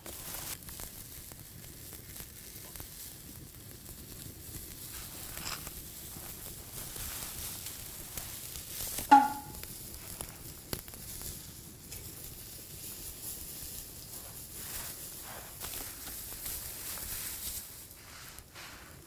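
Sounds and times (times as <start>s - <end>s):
skewers sizzling over fire: 0.0s - 19.0s
grill basket clanking on grate: 9.1s - 9.6s
light metal tap: 9.1s - 9.6s.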